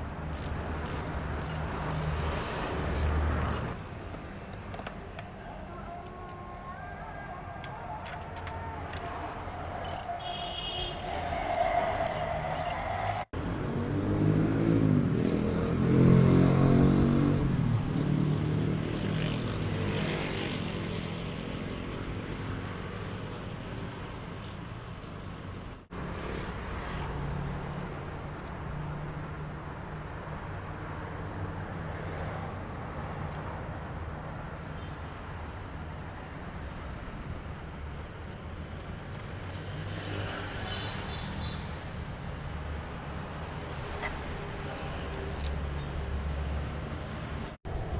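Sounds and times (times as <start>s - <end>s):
street noise: 0.0s - 47.9s
passing vehicle engine: 11.0s - 21.1s.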